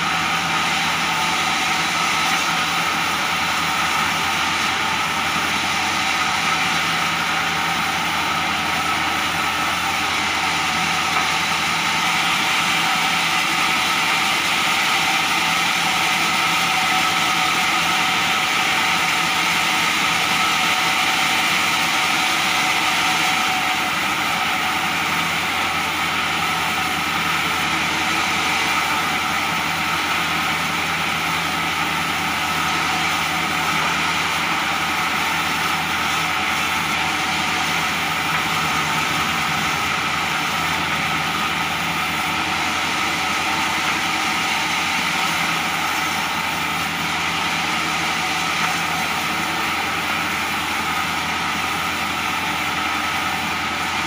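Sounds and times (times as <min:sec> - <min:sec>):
bandsaw cutting boards: 0:00.0 - 0:54.0.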